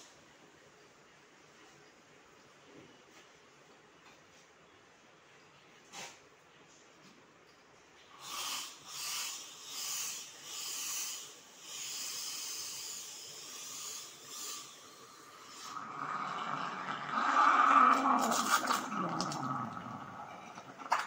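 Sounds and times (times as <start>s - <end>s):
steam wand hissing: 8.2s - 16.3s
steam bubbling through water: 11.7s - 20.9s.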